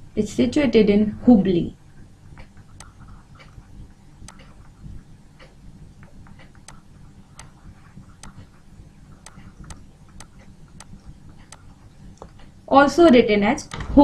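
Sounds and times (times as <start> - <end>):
low steady hum: 0.0 - 14.0
stylus tapping on tablet: 2.4 - 3.6, 4.2 - 4.7, 5.4 - 12.4.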